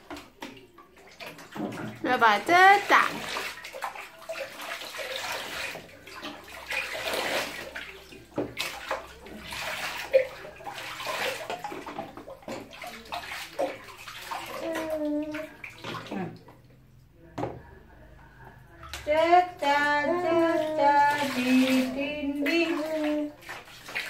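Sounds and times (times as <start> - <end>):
water sloshing in a bathtub: 0.0 - 24.0.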